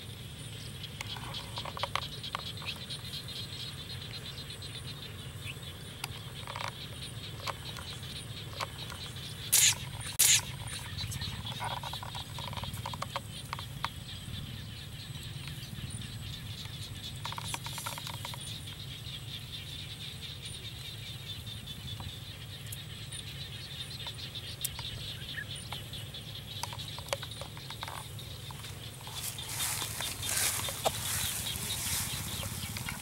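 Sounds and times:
insects chirring: 0:00.0 - 0:33.0.

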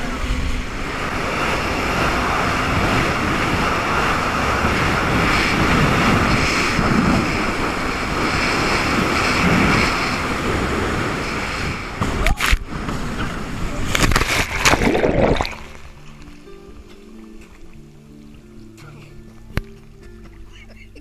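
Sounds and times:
wind buffeting microphone: 0:00.0 - 0:15.7.

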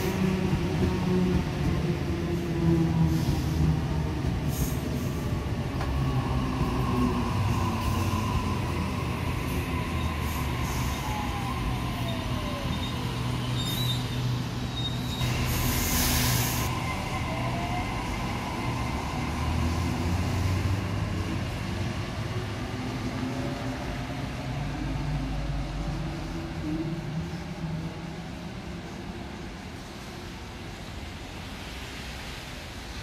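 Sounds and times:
train wheel-on-rail rumble: 0:00.0 - 0:33.0
high squeal: 0:09.8 - 0:18.3
short hiss: 0:15.2 - 0:16.7.

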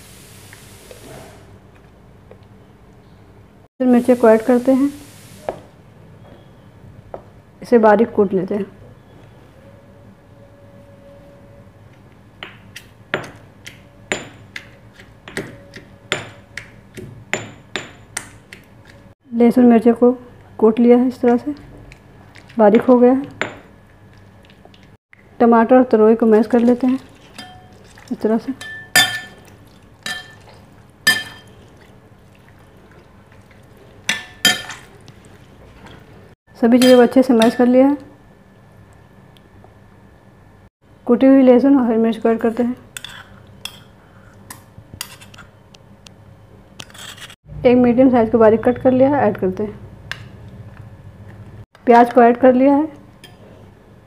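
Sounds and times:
masher clinking against glass bowl: 0:28.6 - 0:30.5, 0:31.1 - 0:31.5.

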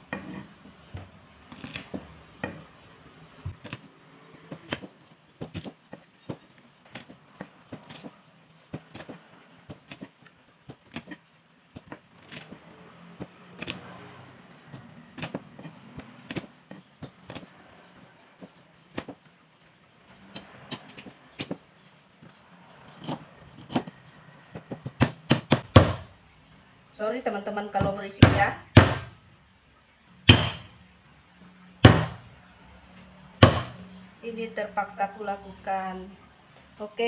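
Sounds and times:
cleaver crushing on wooden board: 0:00.1 - 0:02.7, 0:03.4 - 0:11.2, 0:14.7 - 0:17.6, 0:23.0 - 0:26.1, 0:30.3 - 0:30.7, 0:31.8 - 0:32.2, 0:33.4 - 0:33.8.

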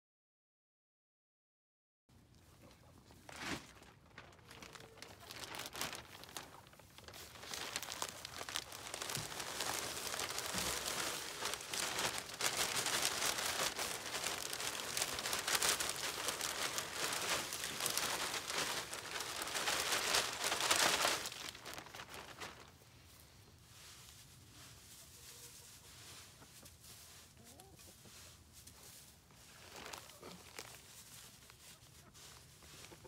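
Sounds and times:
plastic bag crinkling: 0:03.3 - 0:22.8, 0:29.0 - 0:32.8
wood shavings pouring: 0:05.0 - 0:22.7.

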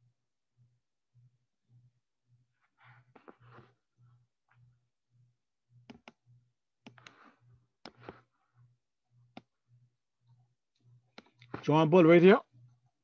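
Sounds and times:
faint pulsing hum: 0:00.0 - 0:13.0
computer mouse clicks: 0:05.8 - 0:06.2, 0:06.8 - 0:08.2, 0:10.2 - 0:11.7.

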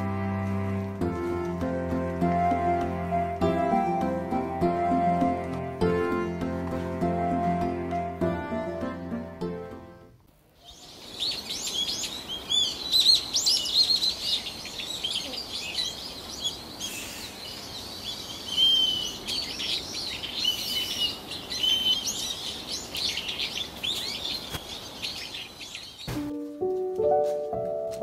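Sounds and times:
small birds chirping: 0:10.5 - 0:26.2
whistled bird notes: 0:10.6 - 0:26.1.

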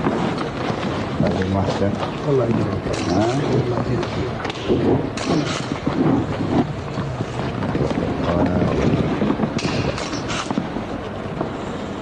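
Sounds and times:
steady rumbling noise: 0:00.0 - 0:12.0.

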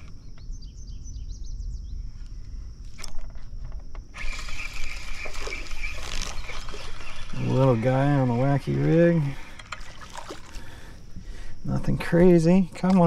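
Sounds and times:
high insect buzz: 0:00.0 - 0:13.0
bird chirps: 0:00.2 - 0:02.1, 0:04.5 - 0:08.4.

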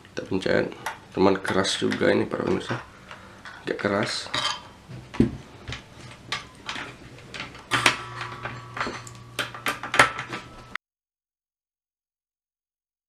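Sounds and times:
metal and plastic clicks and knocks: 0:05.1 - 0:10.5
short metallic ring: 0:07.7 - 0:09.5.

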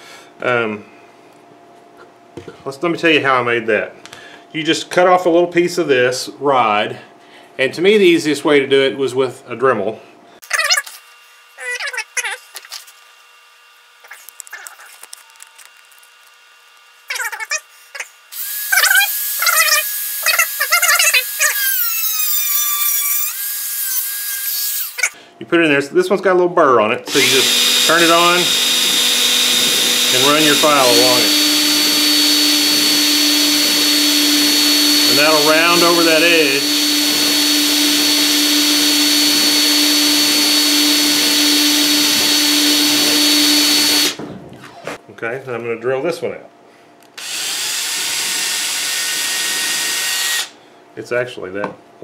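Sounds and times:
rotary tool high whine: 0:10.4 - 0:25.2, 0:27.1 - 0:45.0, 0:47.2 - 0:50.6
cut-off wheel grinding metal rod: 0:27.1 - 0:44.2.

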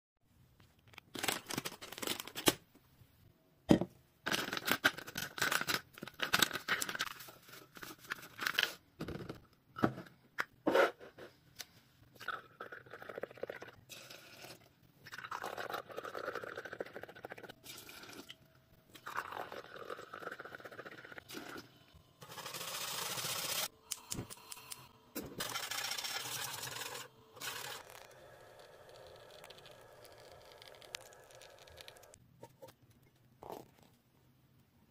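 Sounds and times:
sachet crinkling: 0:01.0 - 0:02.6.

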